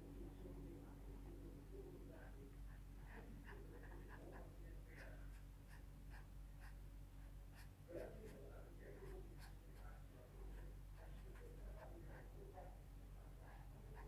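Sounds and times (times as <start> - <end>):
steady low hum: 0.0 - 14.0
marker rubbing on paper: 9.0 - 12.4.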